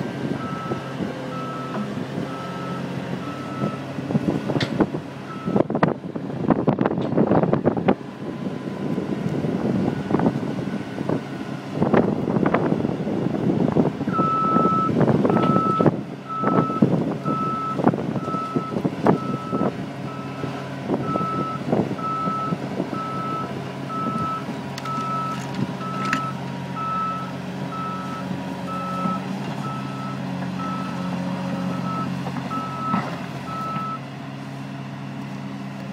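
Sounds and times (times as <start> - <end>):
diesel engine running: 0.0 - 35.9
excavator travel alarm beeping: 0.4 - 3.9, 5.3 - 5.8, 14.1 - 34.0.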